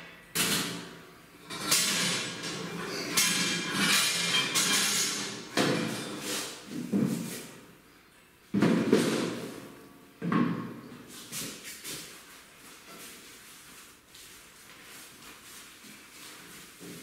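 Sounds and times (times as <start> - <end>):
metal bars clanking: 1.5 - 6.2.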